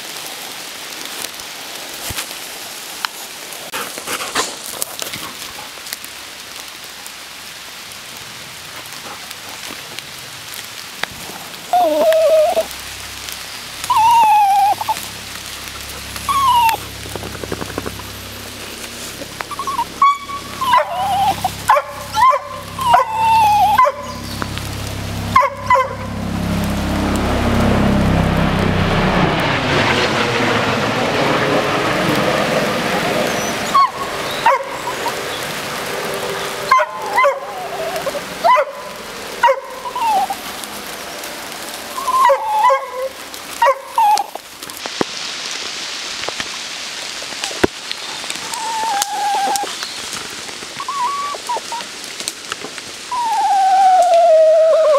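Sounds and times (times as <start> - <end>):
dog yipping and whining: 11.7 - 12.7, 13.8 - 15.1, 16.2 - 17.0, 19.4 - 24.3, 25.4 - 26.0, 33.3 - 35.2, 36.7 - 40.4, 42.0 - 44.4, 48.5 - 49.7, 50.8 - 51.9, 53.1 - 54.9
steady rushing noise: 12.4 - 42.2.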